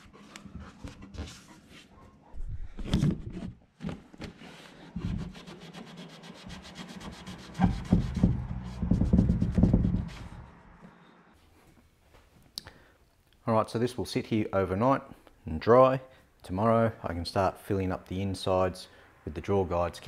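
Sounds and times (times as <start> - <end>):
cloth rag scrubbing wood: 4.4 - 10.4.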